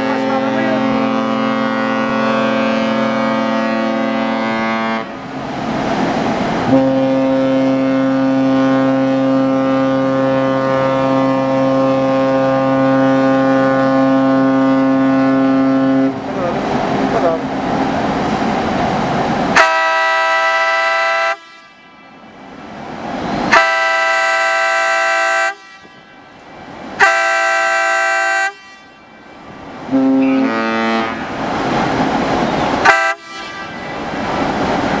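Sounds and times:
ship whistle blasts: 0.1s - 5.1s, 6.7s - 16.2s, 19.6s - 22.2s, 23.4s - 26.4s, 27.0s - 29.3s, 29.9s - 31.3s, 32.8s - 34.1s.

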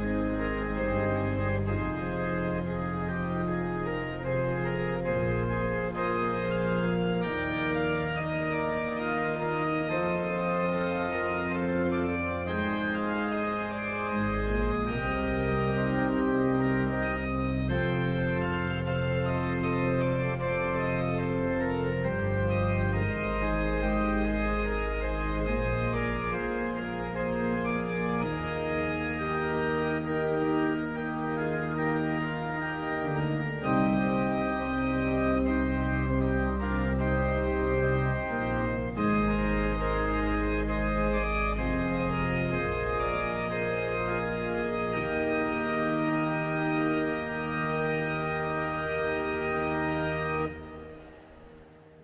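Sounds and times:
church organ chords: 0.0s - 52.0s.

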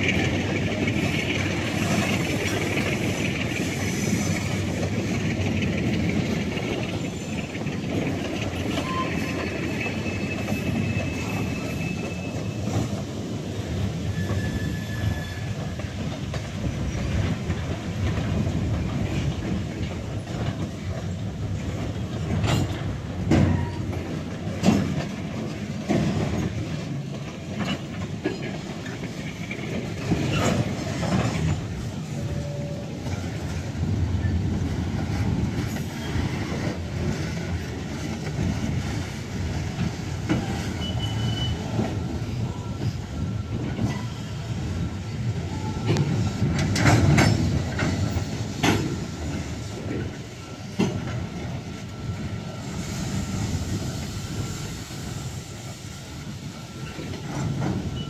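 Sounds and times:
train wheels rumbling on rail: 0.0s - 58.0s
wheel squeals: 6.8s - 13.0s, 14.0s - 16.0s, 40.3s - 44.8s, 56.0s - 58.0s.

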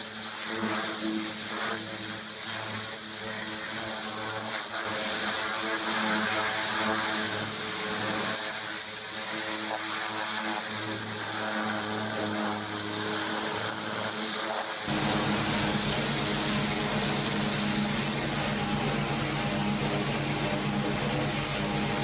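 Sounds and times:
high-pressure water jet hissing: 0.0s - 22.0s
engine droning: 14.9s - 22.0s.

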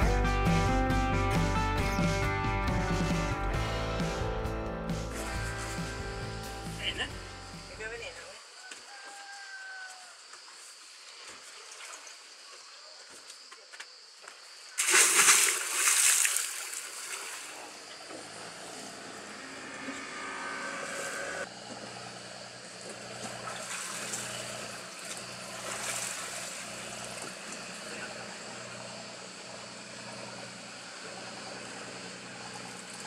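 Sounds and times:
boat engine humming: 0.0s - 8.3s, 16.5s - 33.0s
loud rushing noise: 18.3s - 21.5s.

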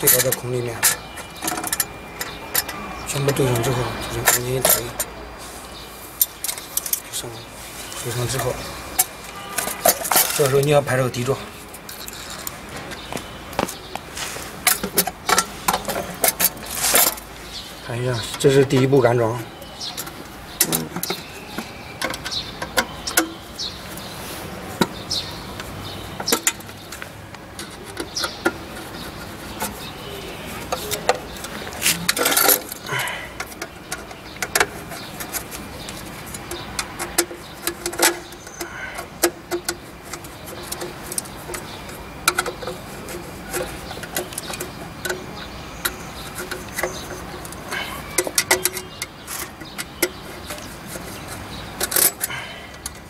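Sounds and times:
metal parts clattering: 0.0s - 5.1s, 8.1s - 13.1s, 30.6s - 53.0s.

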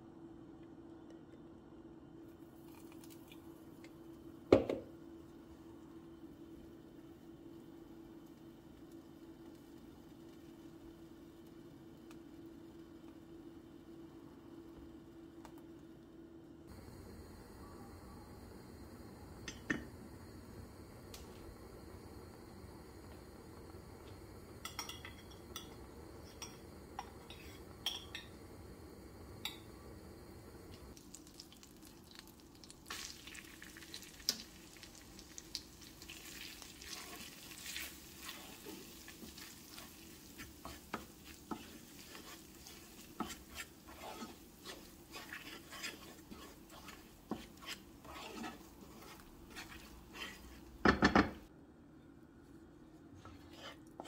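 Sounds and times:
spoon knock on pan: 4.5s - 4.9s
butter sizzling in a frying pan: 6.6s - 12.8s, 16.7s - 51.5s
wooden spoon scraping a pan: 20.4s - 28.1s, 36.6s - 51.5s, 53.2s - 54.0s.

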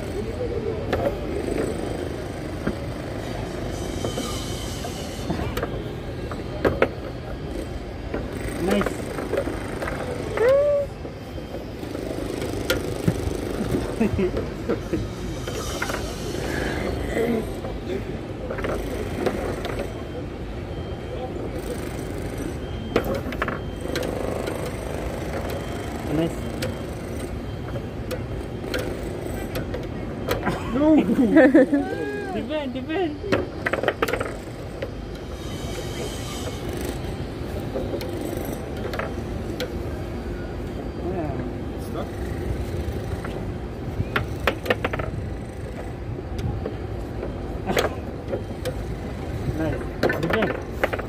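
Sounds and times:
foosball rods banging: 33.3s - 34.4s, 44.1s - 45.2s
foosball players clacking ball: 44.1s - 45.4s, 49.7s - 51.0s.

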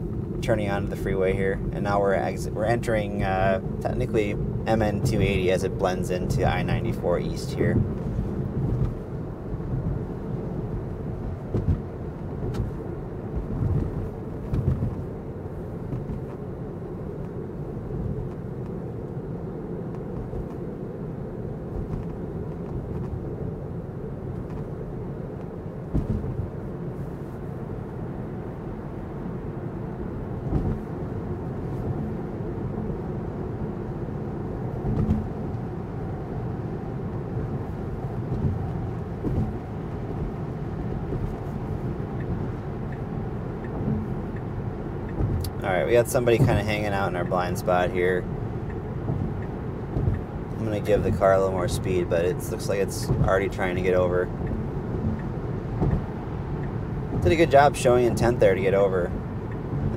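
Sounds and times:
tyre and road rumble: 0.0s - 59.9s
brief thumps: 25.9s - 26.5s, 30.5s - 30.9s, 38.3s - 39.7s.

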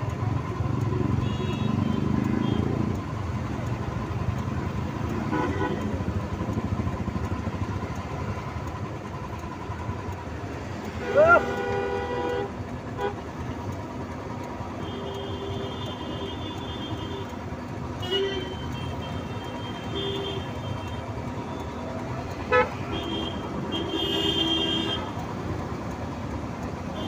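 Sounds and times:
engine and road rumble: 0.0s - 27.0s
vehicle horns honking: 5.1s - 6.0s, 11.0s - 13.3s, 17.9s - 21.6s, 22.4s - 25.2s.

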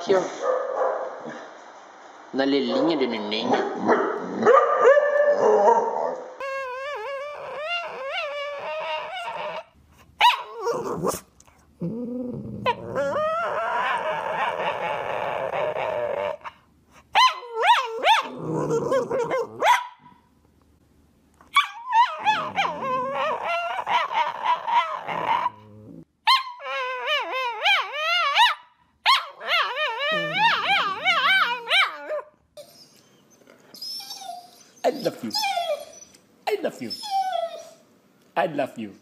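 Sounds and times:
dog whining howls: 6.4s - 9.7s, 12.2s - 16.5s, 17.2s - 19.7s, 21.6s - 25.7s, 26.3s - 33.0s, 33.8s - 36.2s, 36.9s - 37.8s.

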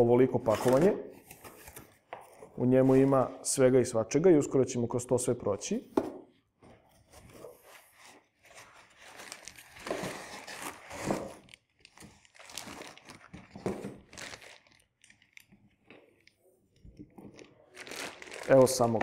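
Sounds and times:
plastic bag crinkling: 9.0s - 9.9s, 10.5s - 15.6s, 17.3s - 19.0s.

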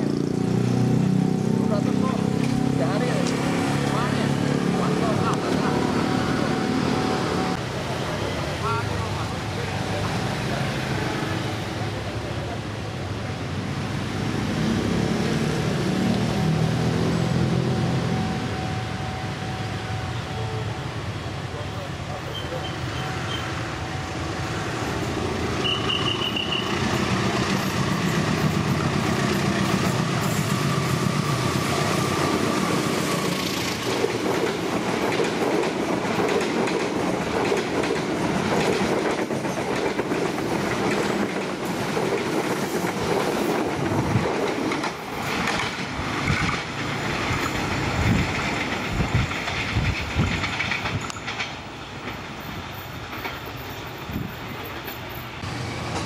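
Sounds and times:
train wheels clacking over rail joints: 33.2s - 52.3s.

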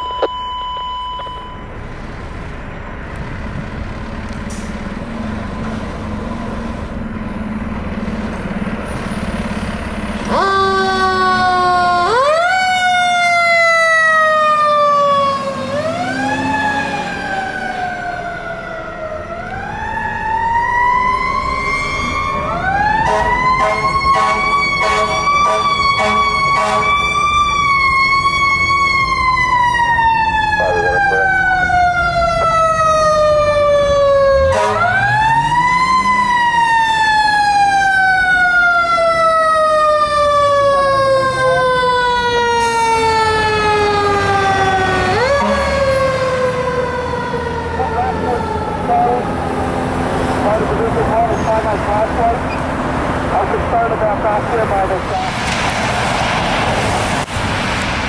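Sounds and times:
siren wailing: 0.0s - 1.7s, 10.3s - 49.9s
fire truck engine running: 0.0s - 58.0s
short sharp siren pulses: 28.8s - 33.2s.

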